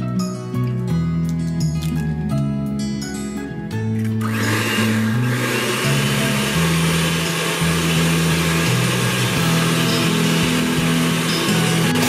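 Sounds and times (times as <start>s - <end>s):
electric hand mixer running: 4.2s - 12.0s.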